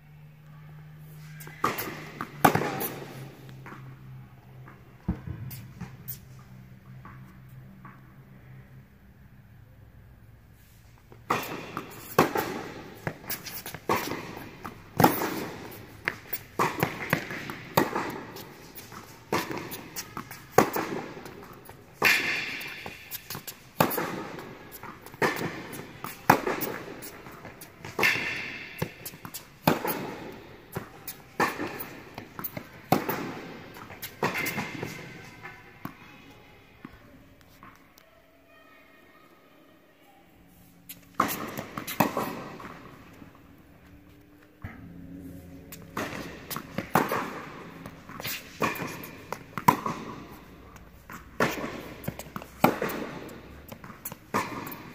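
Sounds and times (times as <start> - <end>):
tennis balls struck by racquets: 1.4 - 4.0, 11.1 - 36.0, 40.9 - 54.9
tennis balls bouncing on hard court: 1.4 - 6.2, 11.1 - 36.1, 40.9 - 54.9.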